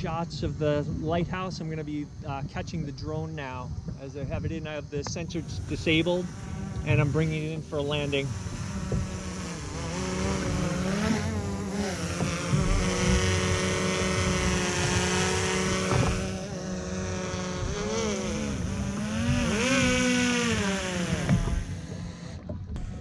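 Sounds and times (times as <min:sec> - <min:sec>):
drone propellers whining: 0:00.0 - 0:23.0
low rumble: 0:03.7 - 0:20.0.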